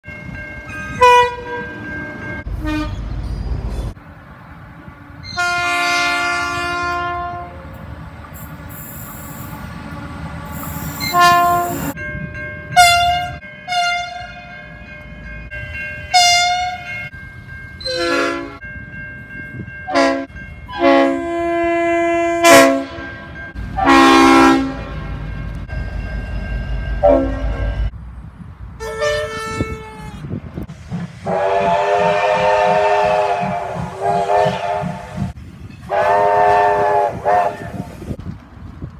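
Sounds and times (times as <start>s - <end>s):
rumble of trains running: 0.0s - 38.9s
diesel locomotive horn blasts: 0.7s - 3.2s, 5.2s - 7.8s, 10.5s - 12.0s, 12.8s - 14.6s, 16.1s - 16.9s, 17.8s - 18.6s, 19.9s - 25.2s, 27.0s - 27.9s, 28.8s - 30.4s, 31.2s - 38.2s.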